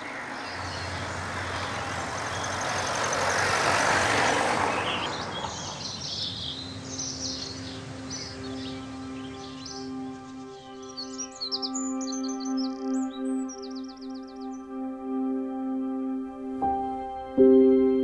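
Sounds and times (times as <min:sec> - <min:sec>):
vehicle passing by: 0:00.0 - 0:10.6
birds chirping: 0:00.0 - 0:14.9.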